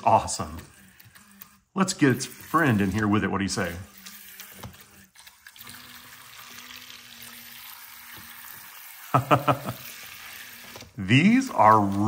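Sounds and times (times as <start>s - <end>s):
faint motor hum: 0.0s - 12.0s
propellers churning water: 1.8s - 10.4s.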